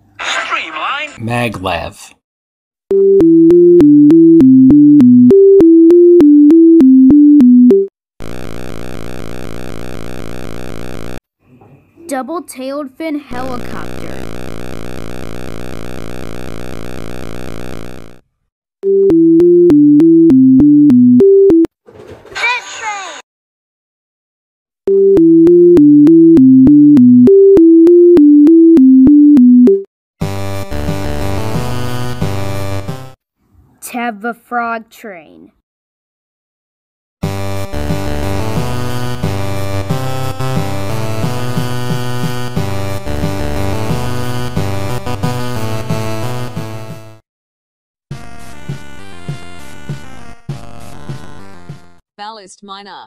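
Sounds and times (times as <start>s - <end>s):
synthesizer melody: 2.9s - 7.9s, 18.8s - 21.7s, 24.9s - 29.9s
buzzing synth drone: 8.2s - 11.2s, 14.2s - 18.2s.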